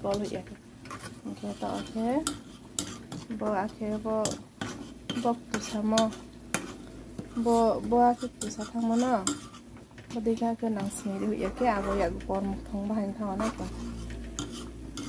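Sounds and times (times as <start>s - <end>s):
ladle scraping metal pan: 0.1s - 9.8s, 10.8s - 15.0s.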